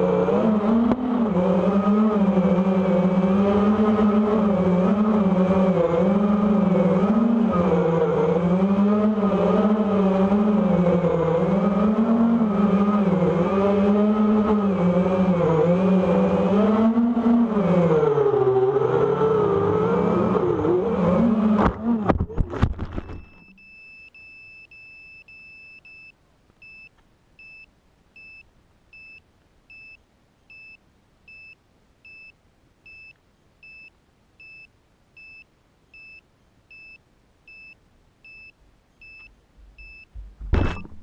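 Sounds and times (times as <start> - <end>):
quadcopter motors whining: 0.0 - 23.4
high electronic beeps: 36.0 - 41.0.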